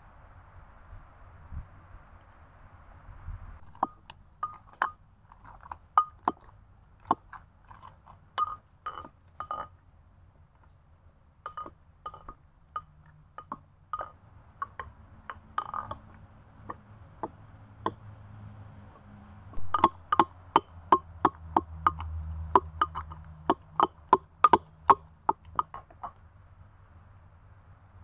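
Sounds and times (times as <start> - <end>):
brass pestle pounding in mortar: 19.6 - 26.1.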